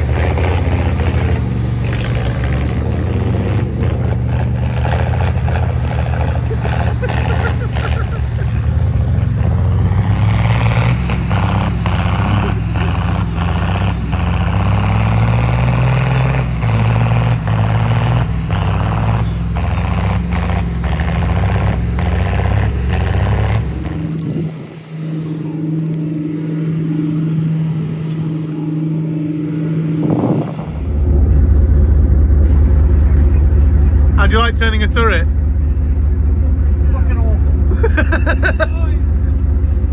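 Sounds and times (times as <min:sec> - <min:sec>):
excavator engine humming: 0:00.0 - 0:39.9
heavy diesel vehicles running hard: 0:00.0 - 0:39.9
loud low rumble: 0:23.7 - 0:39.9.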